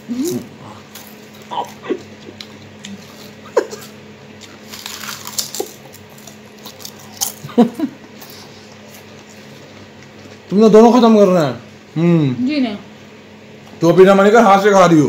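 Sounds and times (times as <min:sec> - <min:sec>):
potato chips crunching: 0:00.1 - 0:09.1
chips crackling in a ceramic bowl: 0:04.5 - 0:07.5.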